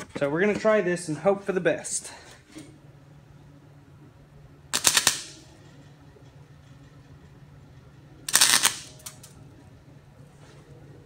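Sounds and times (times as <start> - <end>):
faint steady hum: 0.0 - 11.0
welder arc crackling: 4.7 - 5.5, 8.3 - 9.4.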